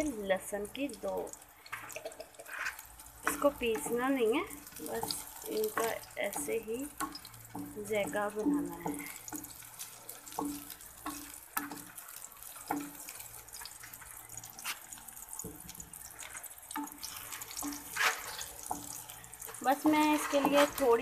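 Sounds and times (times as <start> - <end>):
onions sizzling in frying pan: 0.0 - 21.0
wooden spatula scraping pan: 2.4 - 4.0, 16.4 - 21.0.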